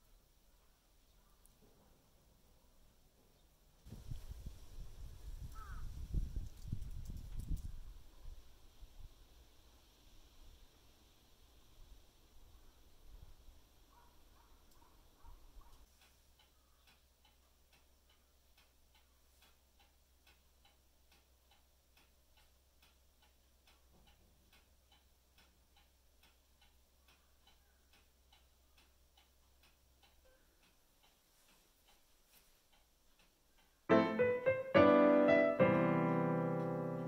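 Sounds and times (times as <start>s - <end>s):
clock ticking: 14.7s - 34.5s.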